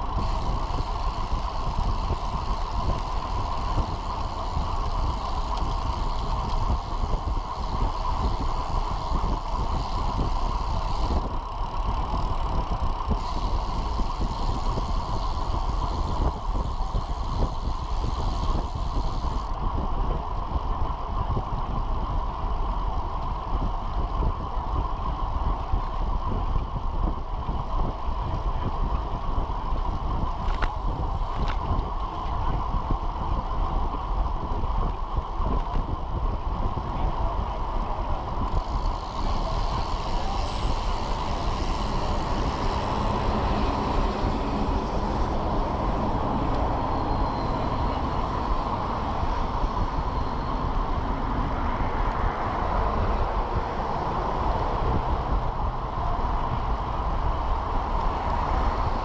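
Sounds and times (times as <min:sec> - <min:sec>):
road noise: 0:00.0 - 0:59.0
wind rumble: 0:00.0 - 0:59.0
truck engine passing: 0:41.2 - 0:49.2.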